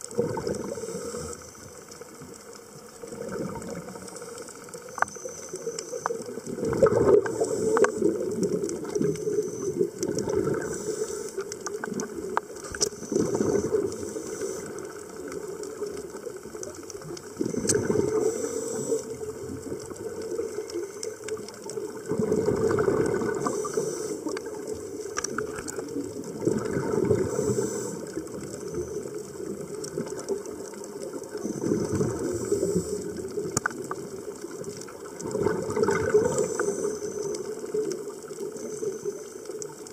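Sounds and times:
underwater bubbles gurgling: 0:00.0 - 0:39.9
regulator hissing and clicking: 0:07.1 - 0:16.3, 0:17.0 - 0:21.8, 0:23.2 - 0:26.0.

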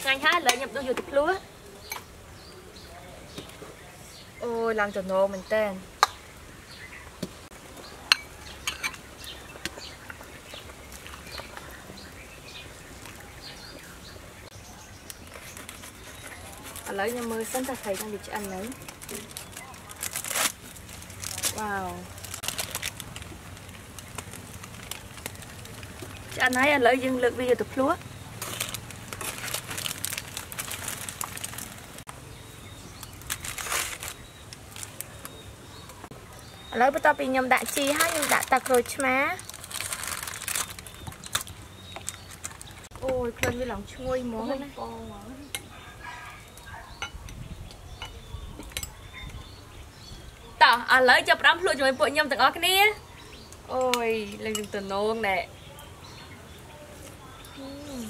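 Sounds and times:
aluminium foil crinkling: 0:15.1 - 0:32.1, 0:33.0 - 0:35.4, 0:37.0 - 0:42.9.

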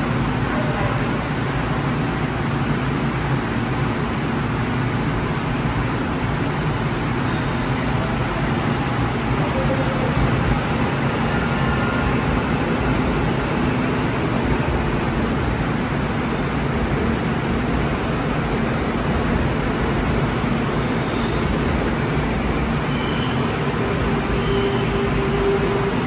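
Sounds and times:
electric train rushing and humming: 0:01.3 - 0:26.0.

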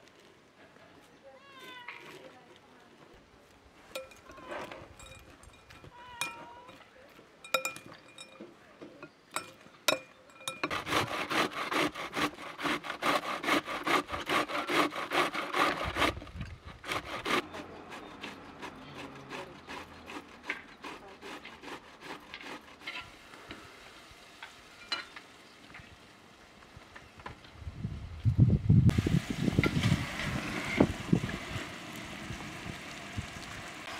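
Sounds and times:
metal spoon clinking glass bowl: 0:04.0 - 0:06.8, 0:07.4 - 0:10.7
cabbage grating on metal grater: 0:10.6 - 0:23.1.

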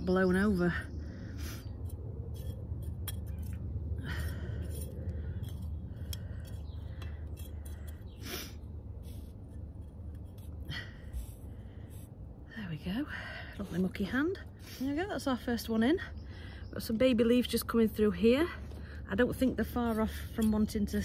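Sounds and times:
low rumble: 0:00.0 - 0:14.6
trowel scraping in soil: 0:01.4 - 0:12.1.

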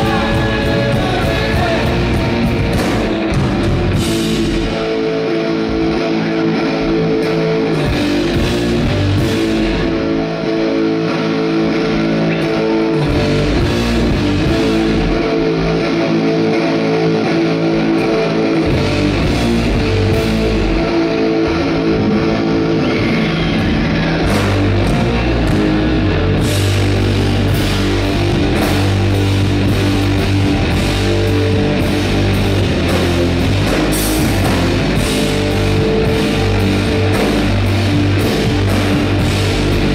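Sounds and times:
bass guitar: 0:00.0 - 0:39.9
drums: 0:00.0 - 0:39.9
electric guitars: 0:00.0 - 0:39.9.

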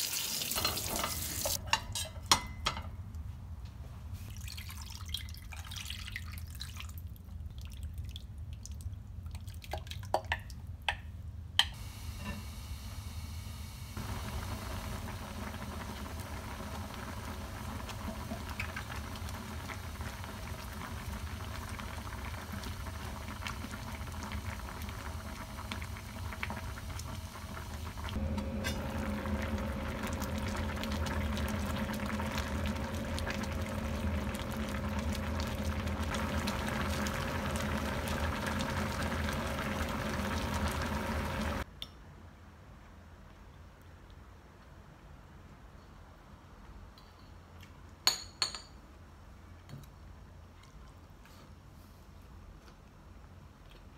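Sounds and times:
stew boiling and bubbling: 0:04.1 - 0:11.0, 0:11.7 - 0:41.7.

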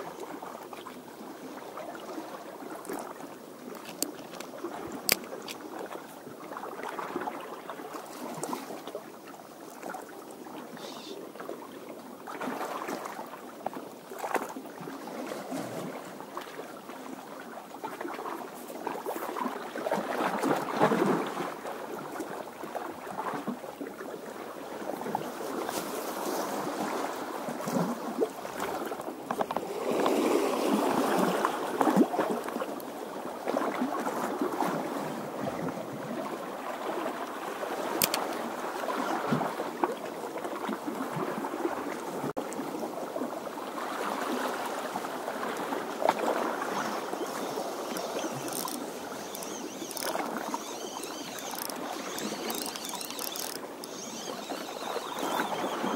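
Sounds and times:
small waves washing against rocks: 0:25.0 - 0:55.9.

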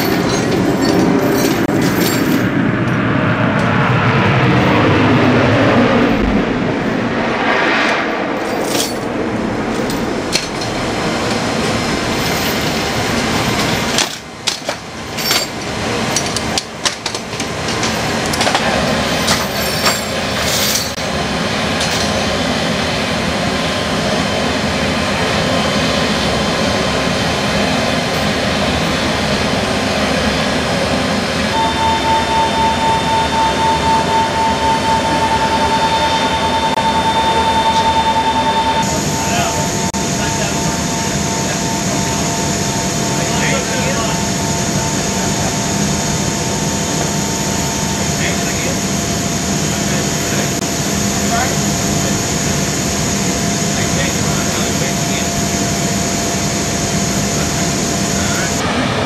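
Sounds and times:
metal chains clanking: 0:00.0 - 0:02.6, 0:08.4 - 0:09.1, 0:12.1 - 0:21.1
loud machinery noise: 0:00.0 - 0:59.0
pulsing whine: 0:00.0 - 0:59.0.

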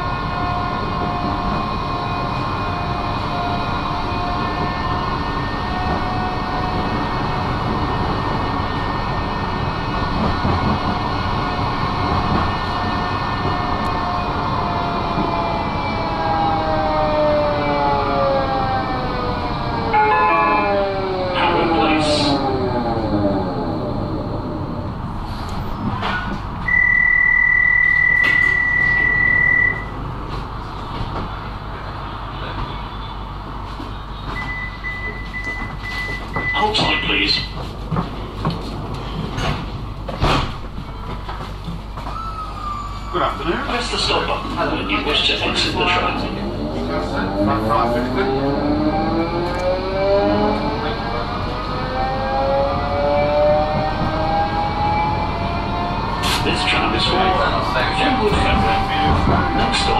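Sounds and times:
tram wheels rumbling on rails: 0:00.0 - 0:59.9
short beeps: 0:26.6 - 0:29.9, 0:34.4 - 0:36.7.

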